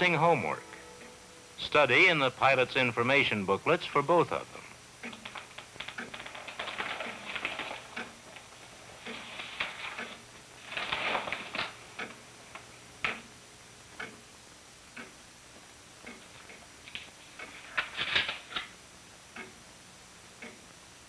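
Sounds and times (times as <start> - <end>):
clock ticking: 0.0 - 10.3, 10.9 - 17.6, 18.5 - 20.8
paper pages rustling: 5.1 - 11.8, 16.9 - 18.7.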